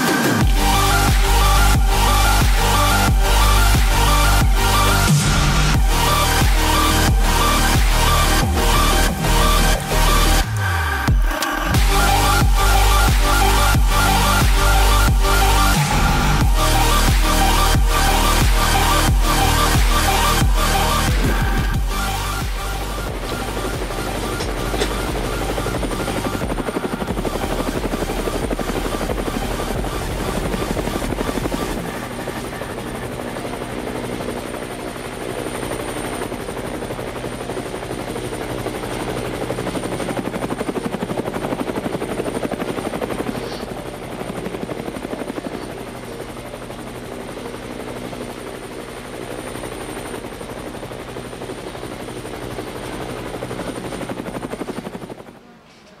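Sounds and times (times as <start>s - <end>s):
spinning rotor whirring: 0.0s - 45.5s
motor hum: 0.0s - 56.0s.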